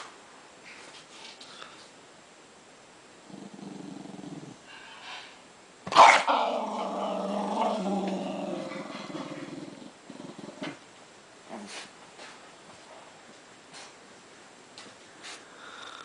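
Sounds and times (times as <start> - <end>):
small dog growling: 3.2 - 4.7, 6.2 - 10.8, 11.4 - 11.9
dog barking: 5.9 - 6.3.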